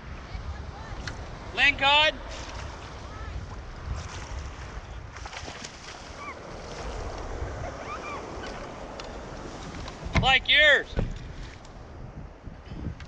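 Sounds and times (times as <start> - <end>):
wind buffeting microphone: 0.0 - 13.0
sea water sloshing: 2.2 - 10.2.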